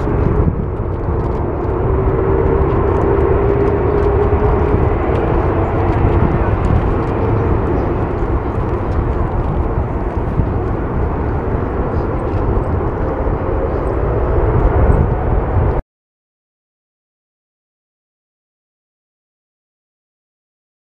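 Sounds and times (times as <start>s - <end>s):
jet engine rumble: 0.0s - 15.8s.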